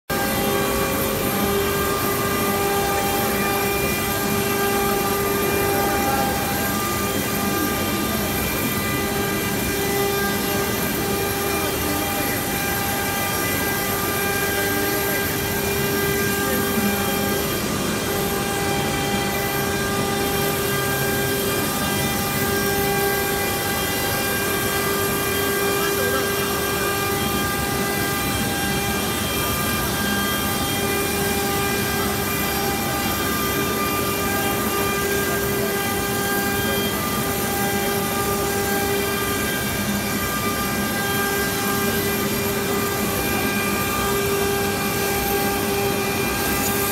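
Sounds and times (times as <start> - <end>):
router spindle carving stone: 0.1 - 46.9.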